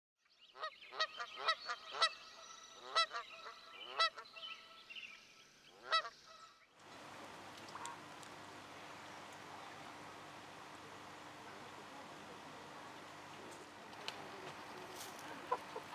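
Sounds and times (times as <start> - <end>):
background hiss: 1.7 - 15.9
geese honking: 2.8 - 4.7, 5.8 - 6.5, 14.2 - 15.9.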